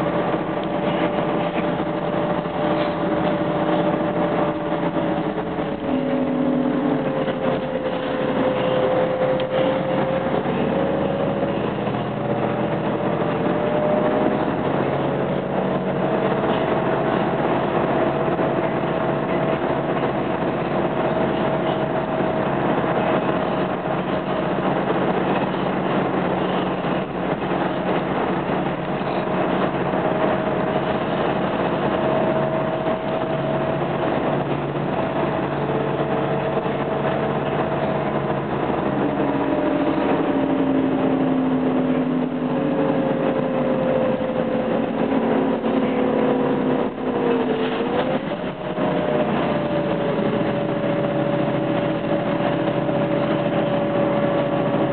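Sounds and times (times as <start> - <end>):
bus engine and road noise: 0.0 - 54.9
engine whine: 0.0 - 54.9.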